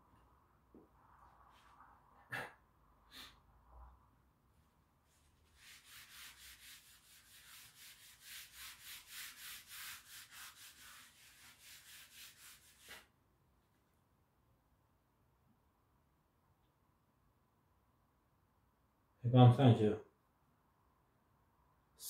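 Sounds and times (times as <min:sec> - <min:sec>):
cloth rubbing chalkboard: 0:05.1 - 0:13.1.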